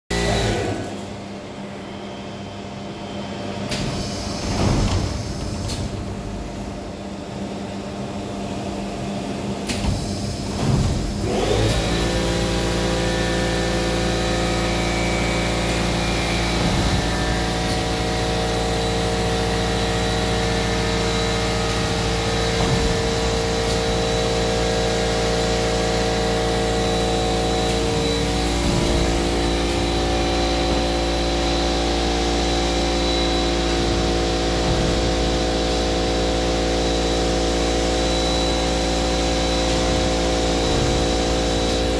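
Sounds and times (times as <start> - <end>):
machine running hum and hiss: 0.1 - 41.9
cleaning machine spraying: 11.2 - 41.9.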